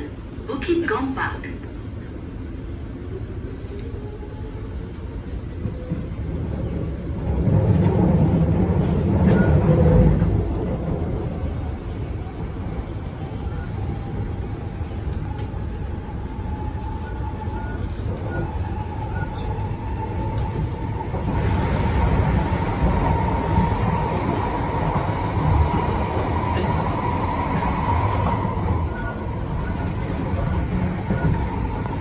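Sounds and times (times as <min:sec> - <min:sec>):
rumble of train wheels on track: 0:00.0 - 0:32.0.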